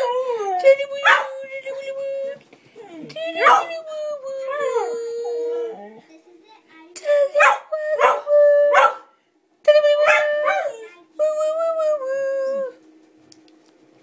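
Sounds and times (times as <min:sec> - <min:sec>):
dog yelping: 0:02.9 - 0:03.7, 0:07.4 - 0:09.1
dog howling: 0:04.4 - 0:06.0.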